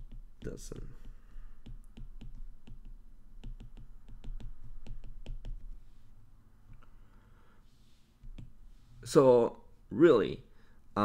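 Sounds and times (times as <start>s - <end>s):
stylus tapping on glass screen: 0.0s - 5.8s.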